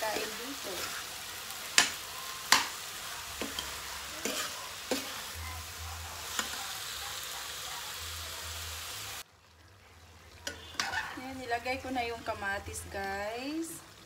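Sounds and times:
vegetables sizzling in a wok: 0:00.0 - 0:14.0
spoon knocking against pan: 0:01.7 - 0:02.8.

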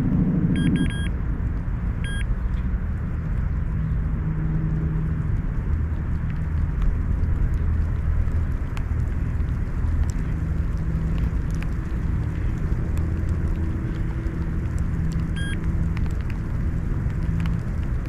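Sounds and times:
steady low rumble: 0:00.0 - 0:18.0
bite alarm beeps: 0:00.6 - 0:01.1, 0:02.0 - 0:02.2.

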